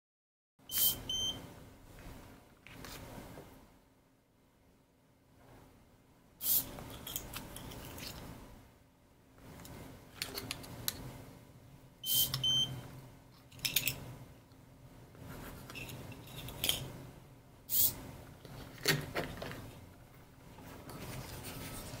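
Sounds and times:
high electronic beep: 0:00.7 - 0:01.4, 0:12.0 - 0:12.7.

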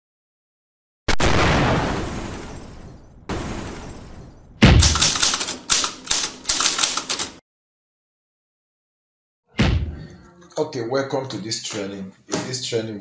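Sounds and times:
typewriter key clacks: 0:04.8 - 0:07.4.

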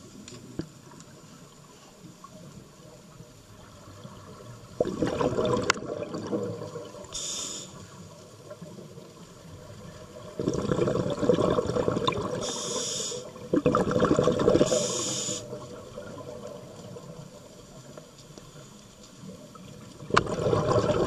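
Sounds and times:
exhaled bubbles underwater: 0:03.6 - 0:17.9, 0:19.2 - 0:21.0
regulator inhalation hiss: 0:07.1 - 0:08.0, 0:12.4 - 0:13.4, 0:14.6 - 0:15.6.

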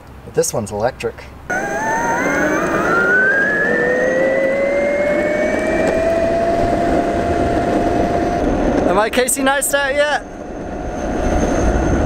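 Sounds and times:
electric motor whine rising: 0:01.5 - 0:08.9
hard wheels rolling on asphalt: 0:01.5 - 0:12.0.

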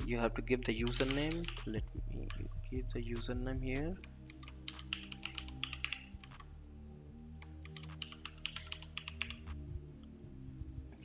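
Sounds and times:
computer keyboard typing: 0:00.8 - 0:03.3, 0:04.0 - 0:06.5, 0:07.4 - 0:09.6.

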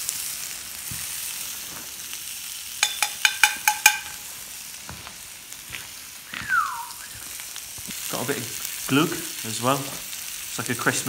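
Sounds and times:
meat sizzling in a frying pan: 0:00.0 - 0:11.0
sharp metallic clinks: 0:02.8 - 0:04.2.

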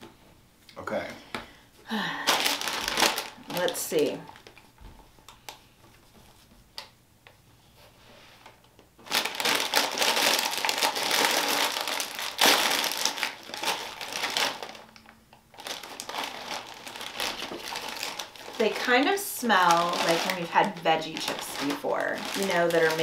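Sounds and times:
plastic bag crinkling: 0:02.0 - 0:04.7, 0:09.0 - 0:23.0.

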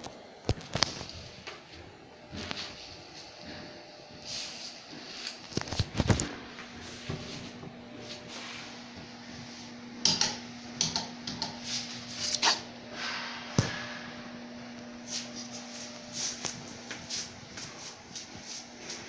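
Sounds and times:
low hum: 0:06.4 - 0:18.1.

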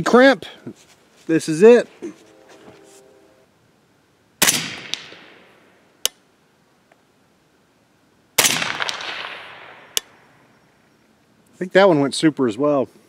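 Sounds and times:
suppressed rifle shots: 0:04.4 - 0:05.6, 0:08.4 - 0:10.2
long echo of shots: 0:04.4 - 0:05.8, 0:08.4 - 0:10.4.

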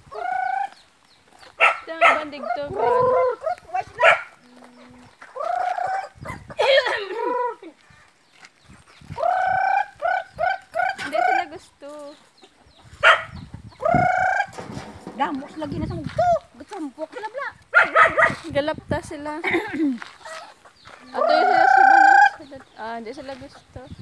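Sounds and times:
hens clucking: 0:00.0 - 0:24.0
roosters crowing: 0:01.6 - 0:07.7, 0:09.1 - 0:11.5, 0:12.9 - 0:16.4, 0:20.2 - 0:22.7.

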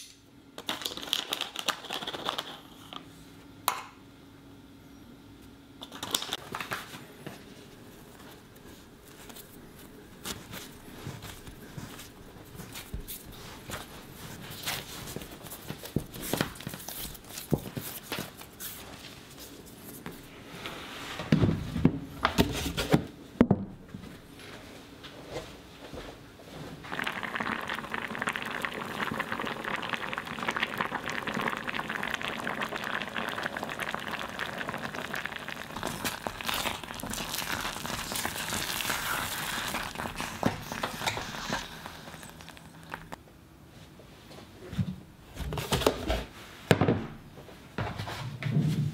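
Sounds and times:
beans bubbling in a pot: 0:26.8 - 0:43.2.

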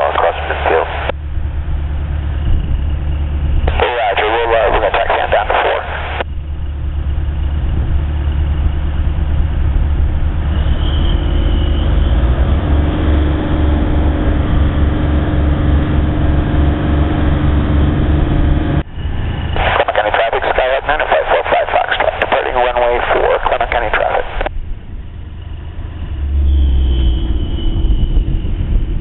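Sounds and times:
steady hum: 0:00.0 - 0:11.8, 0:12.7 - 0:26.2
propeller plane engine drone: 0:00.0 - 0:29.0.

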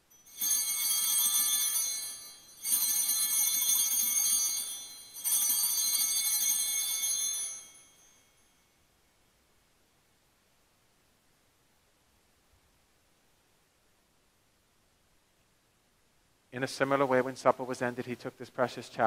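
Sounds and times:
altar bells jangling: 0:00.0 - 0:08.7.

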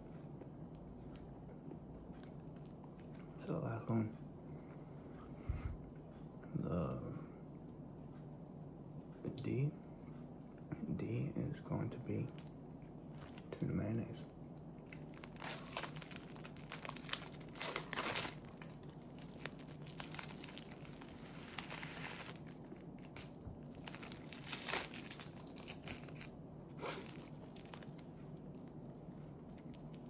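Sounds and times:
plastic wrapper crinkling and tearing: 0:15.0 - 0:26.3, 0:27.0 - 0:28.0.

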